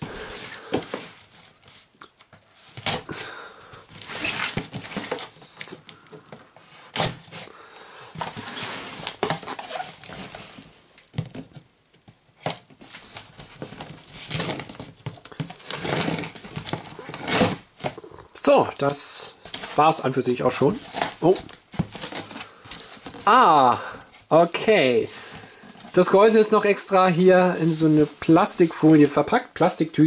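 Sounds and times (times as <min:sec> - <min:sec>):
cardboard rustling: 0:00.0 - 0:07.5, 0:08.1 - 0:24.4, 0:27.6 - 0:29.2.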